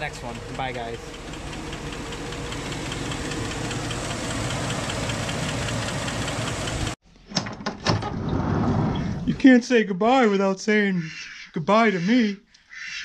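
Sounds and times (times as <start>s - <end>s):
car engine idling with ticking: 0.0s - 7.0s.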